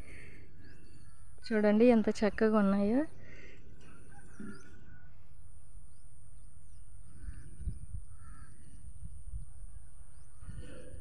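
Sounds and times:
bird chirps: 0.0s - 5.1s.

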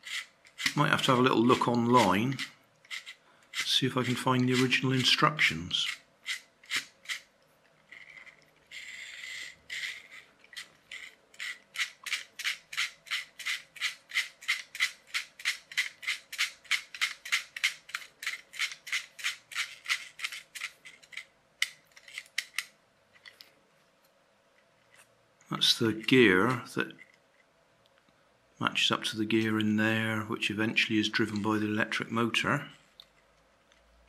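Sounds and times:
plastic gear train clicking: 0.0s - 23.4s
short scraping rub: 7.9s - 14.6s.

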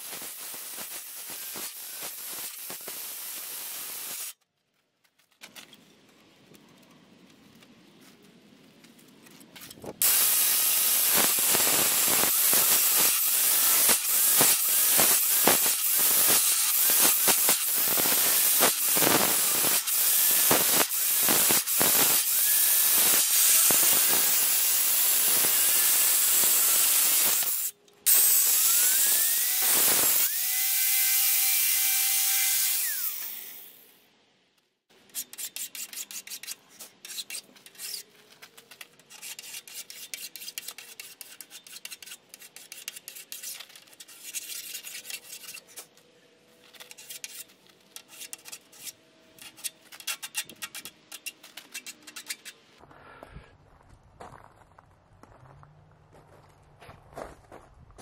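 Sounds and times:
angle grinder cutting steel: 0.0s - 4.3s, 10.0s - 33.8s
grinder spinning free whine: 0.0s - 4.3s, 10.0s - 33.9s.

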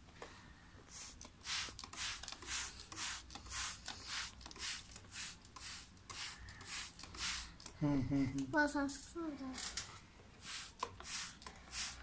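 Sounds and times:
spray bottle hissing squirts: 0.9s - 7.6s, 10.4s - 12.0s.

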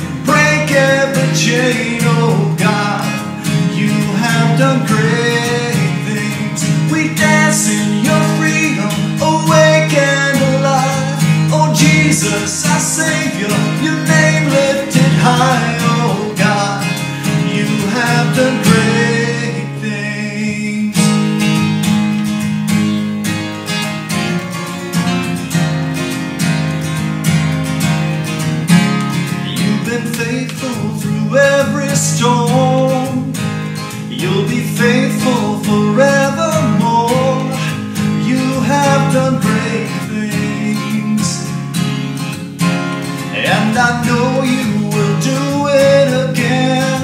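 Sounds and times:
man singing worship song: 0.0s - 21.1s, 29.5s - 33.4s, 34.0s - 41.6s, 43.3s - 47.0s
strummed acoustic guitar: 0.0s - 47.0s.

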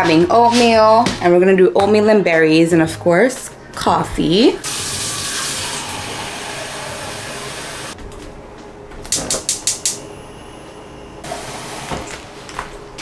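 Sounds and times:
water running from tap: 4.6s - 8.0s.

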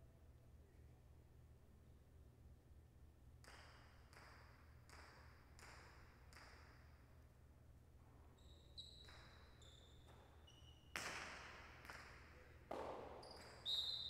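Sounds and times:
short high squeaks: 8.3s - 10.9s.

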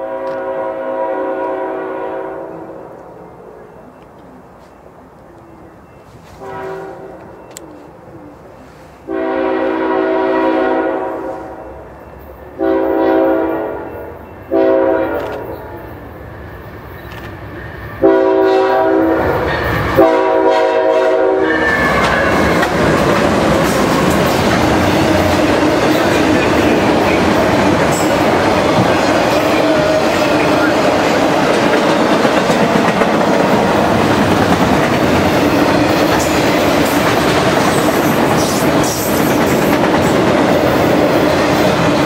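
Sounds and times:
locomotive air horn blasts: 0.0s - 2.8s, 6.3s - 7.4s, 9.0s - 11.6s, 12.6s - 15.5s, 18.0s - 19.4s, 20.0s - 22.6s
locomotive passing: 11.7s - 42.0s
freight cars rolling on rails: 19.0s - 20.1s, 21.4s - 42.0s
wheels clacking over rail joints: 21.7s - 42.0s.

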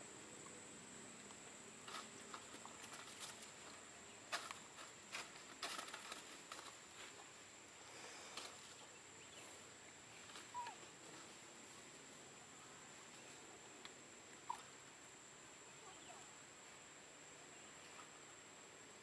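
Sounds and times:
soft clicks and rustles: 1.2s - 7.3s.

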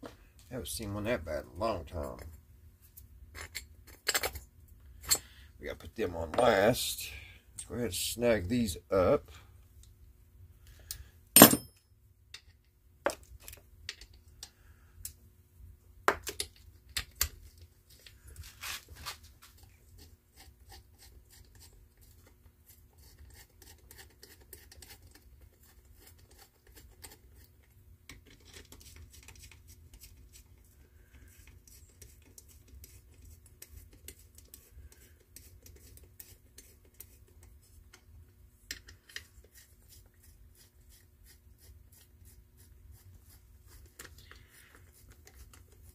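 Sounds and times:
metal bolts clinking and knocking: 11.4s - 11.8s
faint scraping and ticks: 17.4s - 45.9s.

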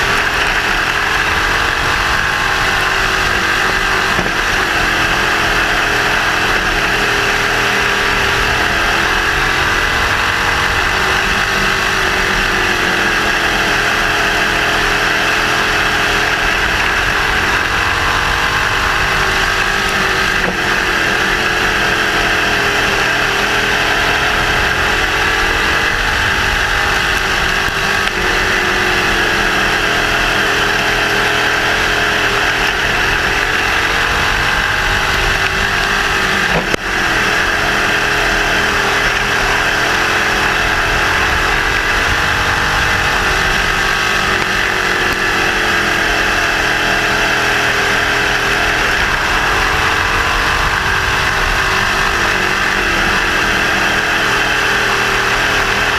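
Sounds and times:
race car engine running: 0.0s - 55.9s.

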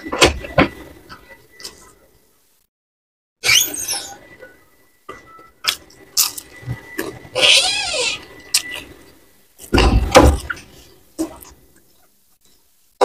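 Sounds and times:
chewing and lip-smacking: 5.6s - 7.2s, 8.2s - 9.0s
squeaky mouth sound: 7.3s - 8.9s.

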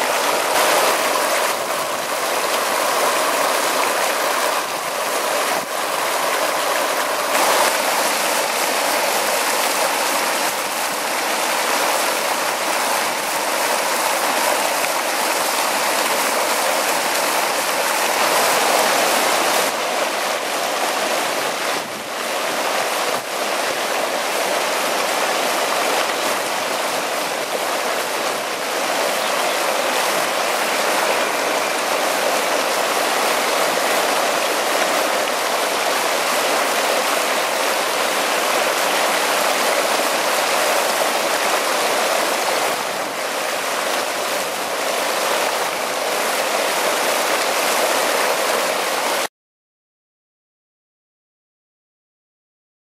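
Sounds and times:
stream water rushing and splashing: 0.0s - 49.3s.

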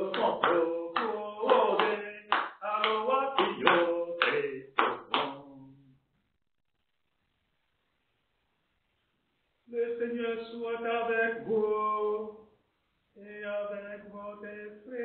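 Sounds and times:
hand clapping: 0.0s - 5.5s
man singing: 0.0s - 6.0s, 9.7s - 12.5s, 13.2s - 15.0s.

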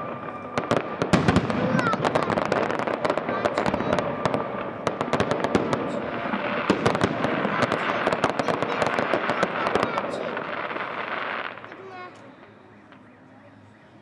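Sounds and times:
fireworks bangs and pops: 0.0s - 13.1s.

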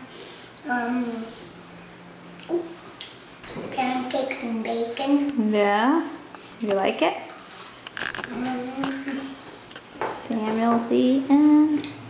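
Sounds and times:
child speaking: 0.6s - 1.4s, 3.6s - 5.4s, 8.3s - 9.4s.

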